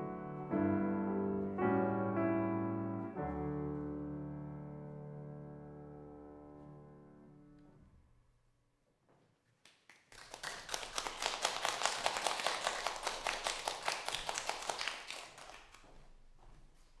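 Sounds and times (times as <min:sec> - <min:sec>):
audience applauding: 0:09.7 - 0:16.0.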